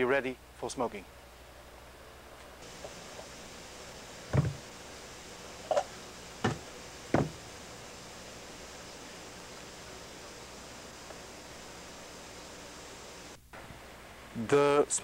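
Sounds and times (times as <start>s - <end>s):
stone weight thudding: 4.3s - 4.6s, 5.7s - 7.4s.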